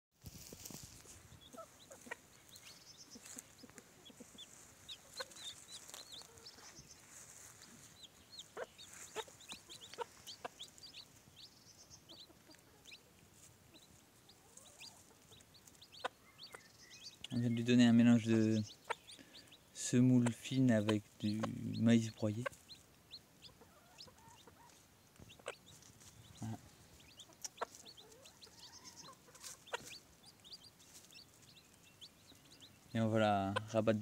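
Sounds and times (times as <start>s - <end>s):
chicks peeping: 0.3s - 34.0s
hen clucking softly: 1.0s - 17.4s, 18.0s - 33.8s.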